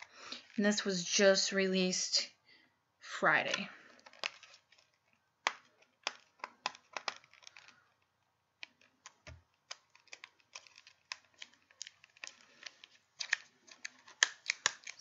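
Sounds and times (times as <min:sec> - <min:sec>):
plastic wrap crinkling: 0:03.5 - 0:15.0.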